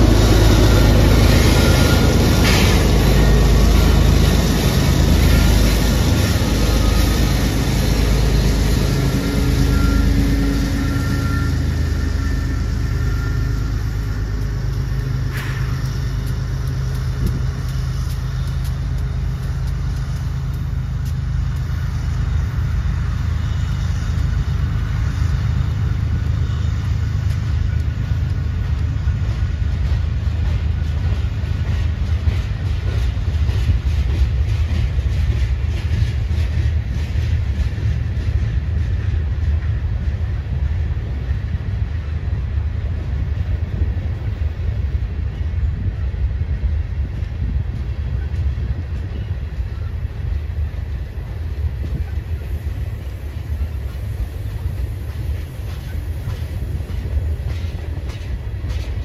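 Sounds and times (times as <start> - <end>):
diesel locomotive engine drone: 0.0 - 59.0
train wheels clicking on rails: 0.0 - 59.0.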